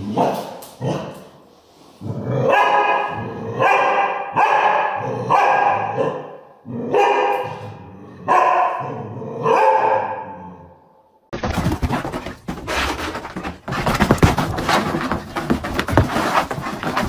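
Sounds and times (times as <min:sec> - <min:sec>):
dog barking: 0:02.4 - 0:10.7.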